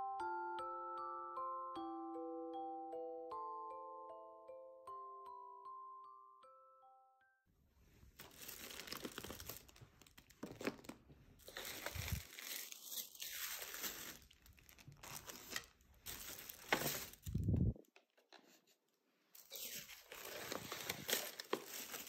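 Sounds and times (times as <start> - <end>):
plastic packaging crinkling: 8.2 - 17.6, 19.4 - 22.0.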